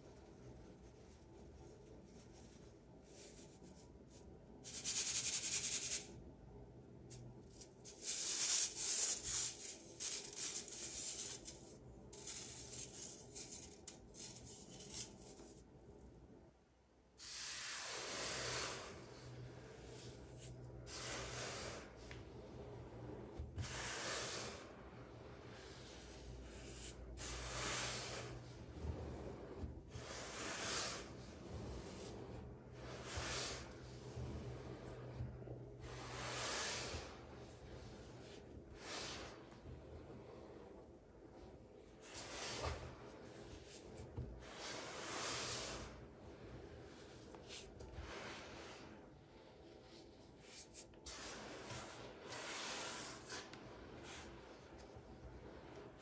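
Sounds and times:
powder sifting through a strainer: 0.0s - 6.2s, 7.2s - 15.6s, 17.2s - 39.8s, 50.4s - 53.5s
powder shaken through sieve: 0.2s - 6.1s, 7.6s - 15.6s.

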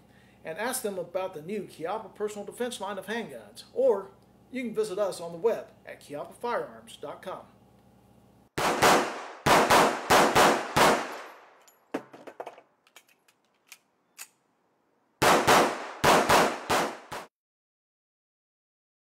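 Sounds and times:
pistol gunshots: 8.6s - 11.6s, 15.2s - 17.3s.

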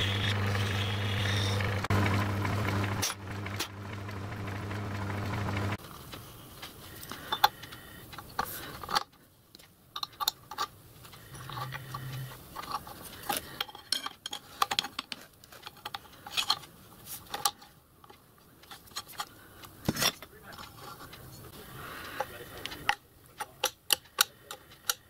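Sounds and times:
metal lathe parts clinking: 10.0s - 16.7s.

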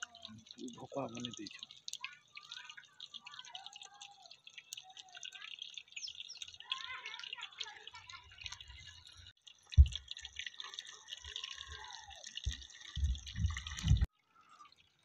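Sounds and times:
fish frying in hot oil: 0.0s - 15.0s
low thumps: 9.8s - 10.0s.

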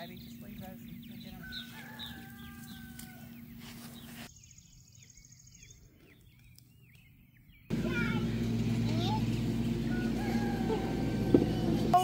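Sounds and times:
chickens calling: 0.0s - 4.2s, 7.7s - 12.0s
loud low hum: 7.7s - 12.0s.

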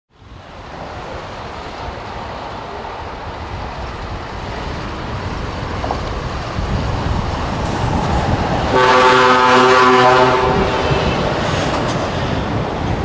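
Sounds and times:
truck horn blast: 8.7s - 11.2s.

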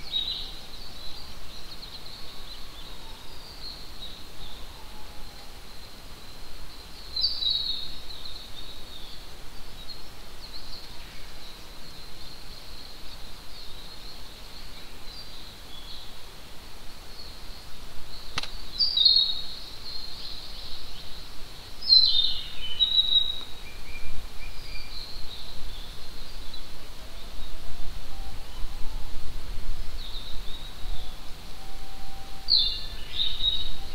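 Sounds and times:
songbirds chirping: 0.0s - 33.9s
sharp click: 18.3s - 18.6s
pigeon's low flute-like whistle: 31.5s - 32.6s.

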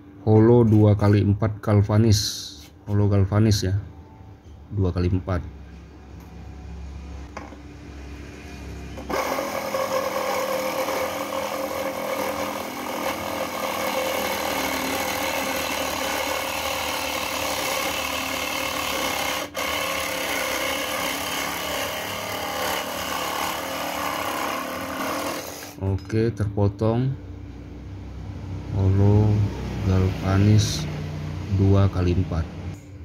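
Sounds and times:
reciprocating saw cutting steel: 9.0s - 25.8s.

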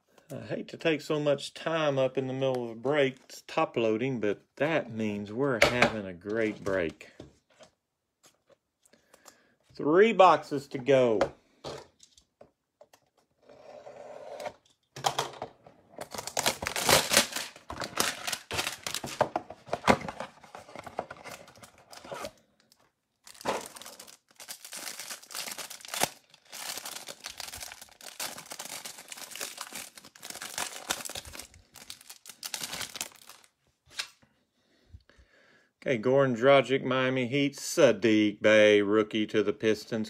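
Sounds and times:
cellophane wrapper crinkling and tearing: 16.0s - 19.3s, 21.2s - 34.1s.

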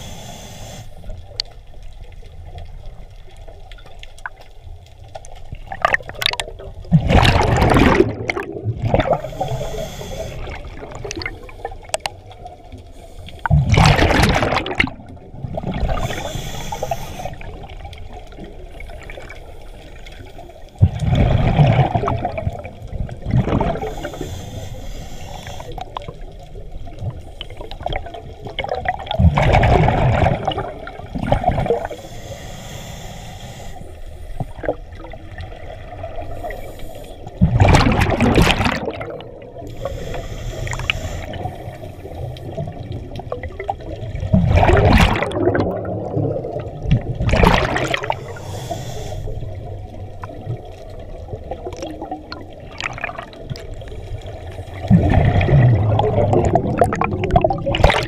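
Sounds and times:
regulator hiss of in-breaths: 0.0s - 1.2s, 9.2s - 10.8s, 12.8s - 13.5s, 15.8s - 17.7s, 23.8s - 26.0s, 31.8s - 34.6s, 36.2s - 37.4s, 39.6s - 42.6s, 48.0s - 49.8s
exhaled bubbles gurgling underwater: 0.0s - 58.0s.

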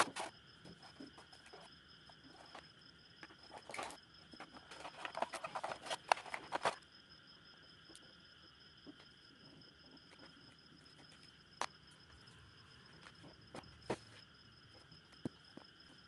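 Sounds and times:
faint high whine: 0.0s - 16.0s
cardboard and foam being handled: 3.5s - 6.8s.

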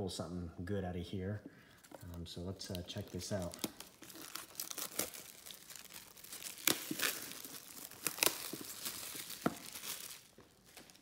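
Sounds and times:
plastic wrap crinkling: 1.8s - 11.0s.

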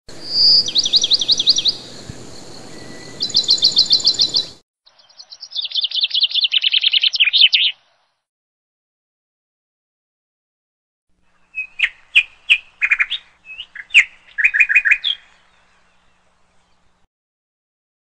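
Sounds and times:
bird chirping: 0.1s - 8.2s, 11.2s - 17.1s.

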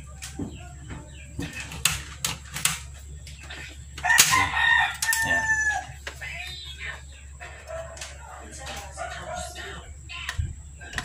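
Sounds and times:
rooster crowing: 4.0s - 6.1s.

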